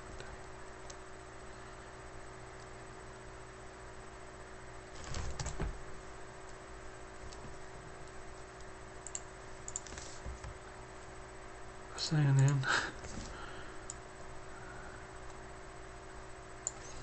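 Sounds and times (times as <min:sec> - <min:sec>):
steady faint hum: 0:00.0 - 0:17.0
keyboard typing: 0:09.0 - 0:10.2.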